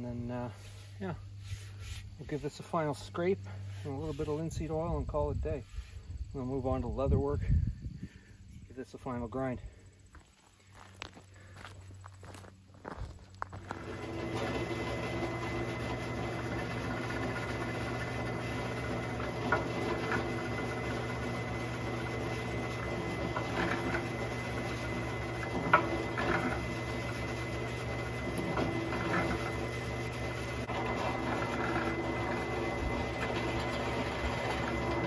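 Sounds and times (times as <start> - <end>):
drill press boring into wood: 13.7 - 35.0.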